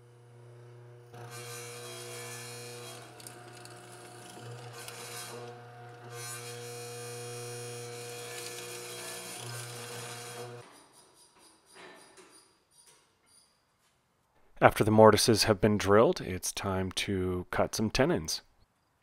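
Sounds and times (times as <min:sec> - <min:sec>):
mortiser cutting wood: 0:00.0 - 0:10.6.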